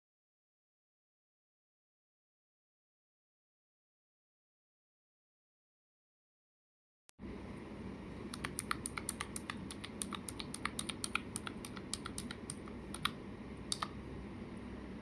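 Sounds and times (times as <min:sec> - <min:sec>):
low background noise: 0:07.2 - 0:15.0
keypad keys clicking: 0:08.3 - 0:14.0.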